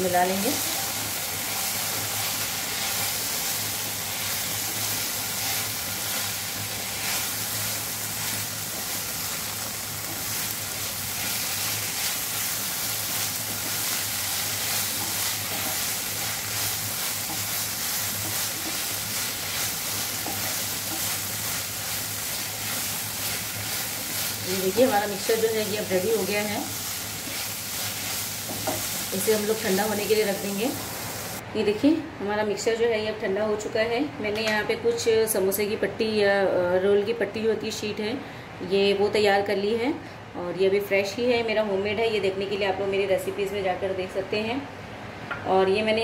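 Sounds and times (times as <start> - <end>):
vegetables sizzling in oil: 0.0 - 31.4.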